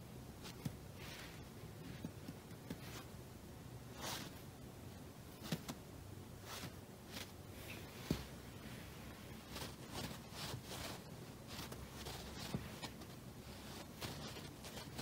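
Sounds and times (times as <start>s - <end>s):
scrape: 0.4s - 2.1s, 2.7s - 3.1s, 3.9s - 4.4s, 6.4s - 15.0s
wand toy rustling on cushion: 0.4s - 3.1s, 6.4s - 15.0s.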